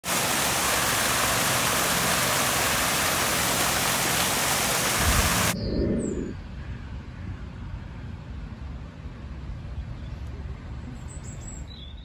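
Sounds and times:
fountain jets splashing: 0.0s - 5.6s.

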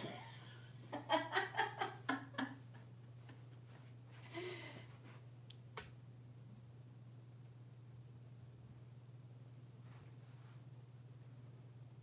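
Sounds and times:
person laughing: 0.0s - 2.6s
steady low hum: 0.0s - 12.0s
breathy sound: 4.2s - 4.9s.

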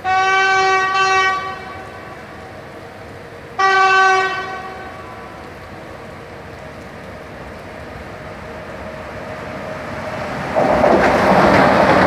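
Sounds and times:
locomotive horn blasts: 0.0s - 2.5s, 3.6s - 5.5s
rain hissing: 0.0s - 12.0s.

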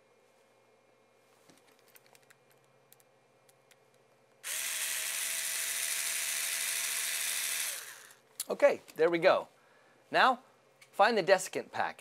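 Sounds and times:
electric screwdriver whining: 4.4s - 8.2s
small screw clicking: 4.4s - 8.2s.

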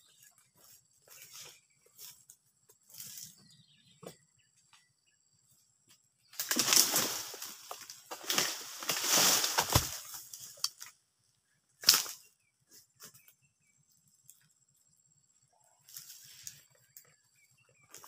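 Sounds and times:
palm fronds rustling and tearing: 6.4s - 10.9s, 11.8s - 12.2s.

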